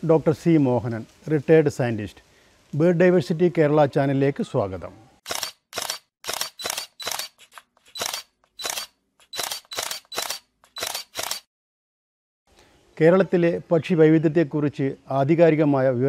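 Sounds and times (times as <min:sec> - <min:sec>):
camera shutter clicks: 0:05.2 - 0:11.5.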